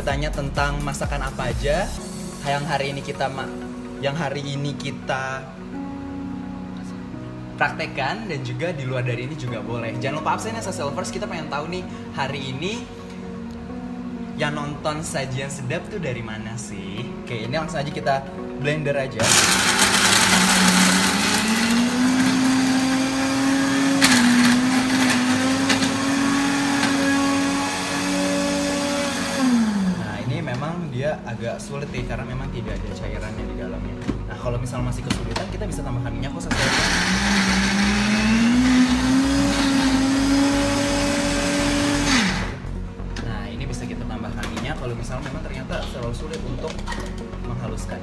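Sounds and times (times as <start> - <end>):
electric blender grinding: 19.2 - 30.3, 36.5 - 42.8.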